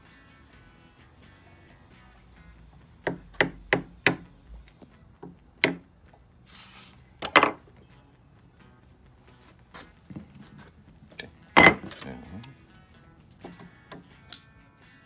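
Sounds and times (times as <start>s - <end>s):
wooden mallet knocking on wood: 3.1s - 4.2s, 5.2s - 5.8s.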